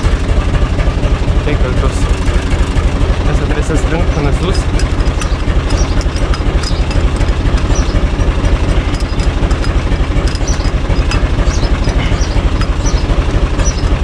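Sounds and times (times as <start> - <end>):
tractor diesel engine idling: 0.0 - 14.0.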